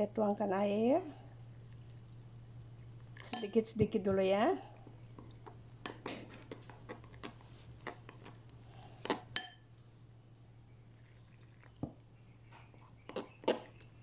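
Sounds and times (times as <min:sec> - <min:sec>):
spoon clinking on glass: 0:03.2 - 0:03.6, 0:09.4 - 0:09.7.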